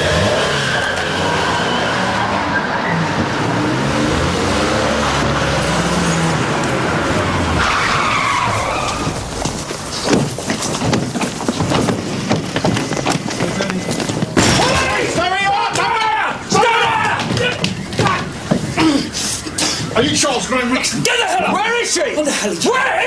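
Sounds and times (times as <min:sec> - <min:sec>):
engines revving: 0:00.0 - 0:14.5
tyres squealing: 0:00.0 - 0:23.0.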